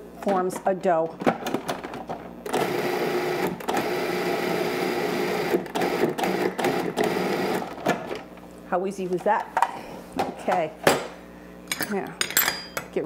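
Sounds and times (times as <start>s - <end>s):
food processor motor running: 2.5s - 7.8s.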